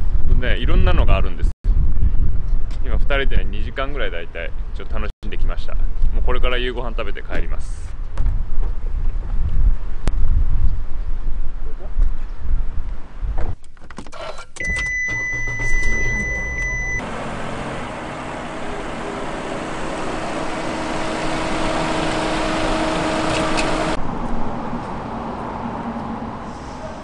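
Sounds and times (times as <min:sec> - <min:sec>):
rushing noise with low hum: 0:00.0 - 0:13.6
high electronic beep: 0:14.6 - 0:17.0.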